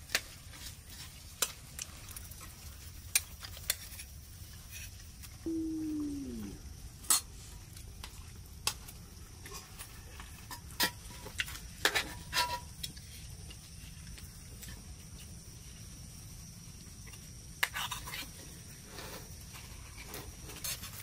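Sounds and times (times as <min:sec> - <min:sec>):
call falling in pitch: 0:05.5 - 0:06.6.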